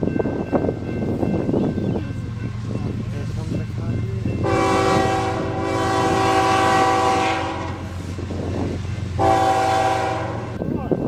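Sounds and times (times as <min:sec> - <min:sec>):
train rumbling: 0:00.0 - 0:11.0
train air horn blasts: 0:04.4 - 0:08.1, 0:09.1 - 0:10.6.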